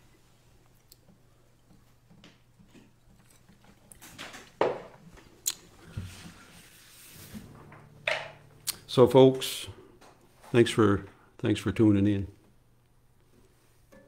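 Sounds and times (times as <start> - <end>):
low electrical hum: 0.0 - 14.0
sharp knocks and clicks: 1.0 - 5.0
rustling: 2.8 - 8.0.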